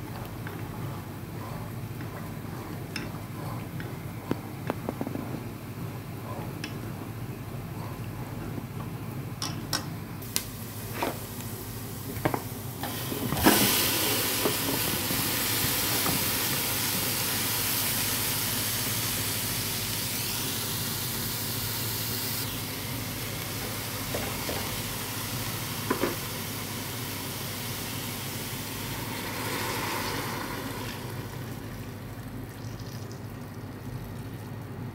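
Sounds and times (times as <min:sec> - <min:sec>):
vegetables sizzling in a pan: 0:10.3 - 0:32.1.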